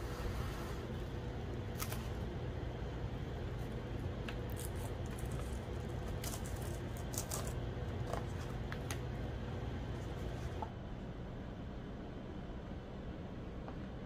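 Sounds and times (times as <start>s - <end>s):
steady low hum: 0.0s - 14.0s
plastic cling wrap crinkling: 4.4s - 8.9s.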